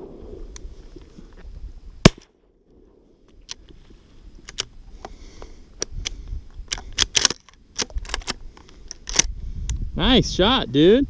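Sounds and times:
shotgun handling clicks and knocks: 4.4s - 5.2s, 5.8s - 9.3s.

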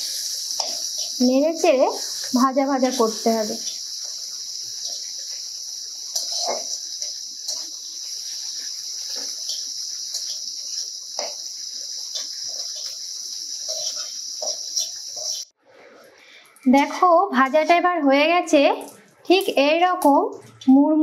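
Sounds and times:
leaves sizzling in oil: 0.0s - 20.6s
steel spatula scraping pan: 6.1s - 7.7s, 12.1s - 15.5s.

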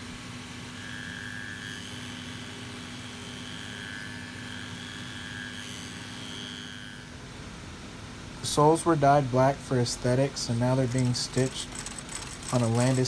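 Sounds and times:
trimming machine cutting leather: 0.6s - 7.1s, 10.7s - 13.0s.

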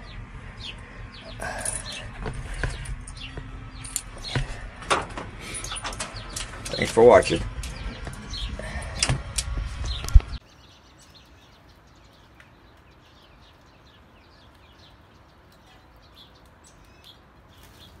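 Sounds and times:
glass door clattering and clicking: 4.0s - 8.2s.

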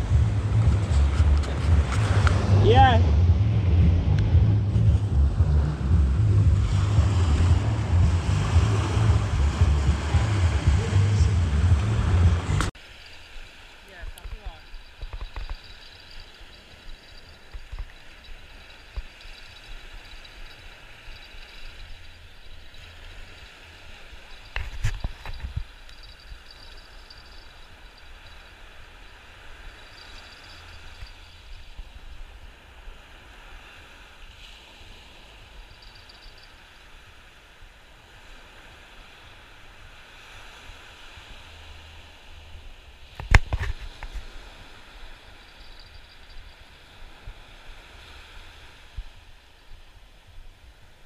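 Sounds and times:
low rumble: 0.0s - 12.8s
surf washing against rocks: 6.7s - 51.0s.

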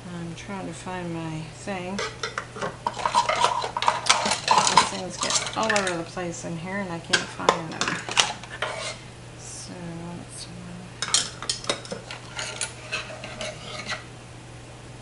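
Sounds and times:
steady low hum: 0.0s - 15.0s
metal utensils clinking: 2.0s - 6.1s, 7.1s - 9.0s, 11.0s - 14.0s.

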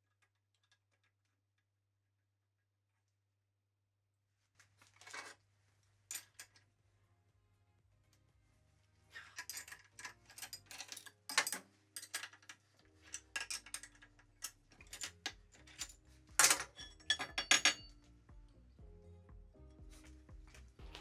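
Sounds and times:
faint background music: 4.6s - 21.0s
metal clinks and knocks: 9.3s - 18.1s.

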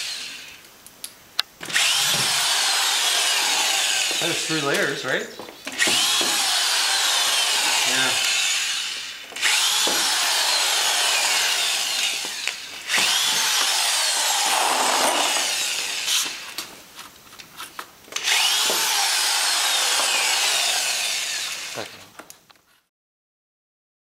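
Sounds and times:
drill clicks: 1.6s - 4.4s, 7.2s - 16.5s, 18.1s - 21.7s
cordless drill driving screws: 1.6s - 5.0s, 5.7s - 16.6s, 18.1s - 22.0s.

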